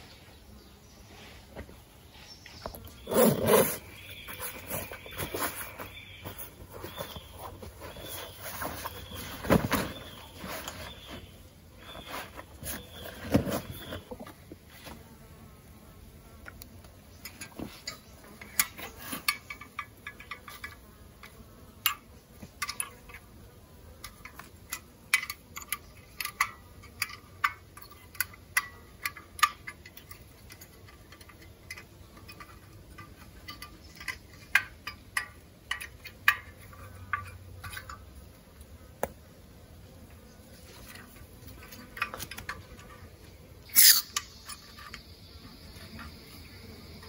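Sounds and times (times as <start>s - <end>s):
camping stove clicks and clinks: 17.2s - 22.0s, 24.0s - 38.0s.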